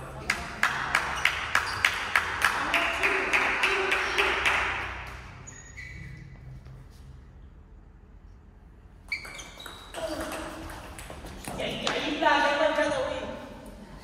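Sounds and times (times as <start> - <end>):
spectators clapping rhythmically: 0.0 - 5.4
crowd cheering: 1.1 - 5.0.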